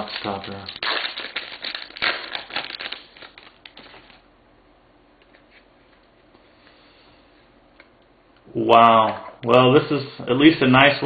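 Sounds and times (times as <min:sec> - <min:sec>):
plastic foil wrapper tearing: 0:00.0 - 0:04.2.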